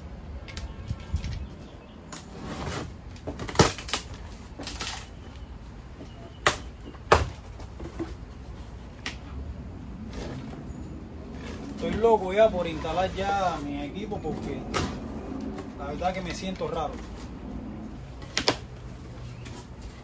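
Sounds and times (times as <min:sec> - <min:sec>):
tape and cardboard snapping: 0:03.1 - 0:05.1, 0:06.4 - 0:08.0, 0:18.2 - 0:18.8.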